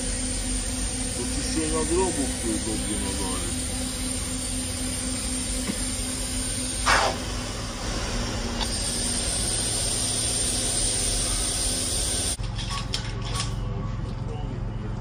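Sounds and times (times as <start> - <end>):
cleaning machine hissing: 0.0 - 12.4.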